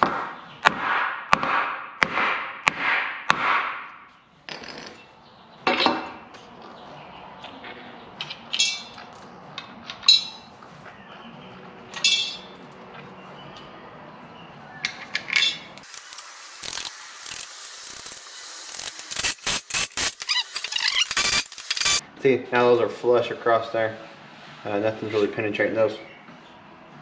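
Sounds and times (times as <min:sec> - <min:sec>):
bolts and washers clinking: 0:08.2 - 0:10.6, 0:11.9 - 0:13.0, 0:14.8 - 0:22.0.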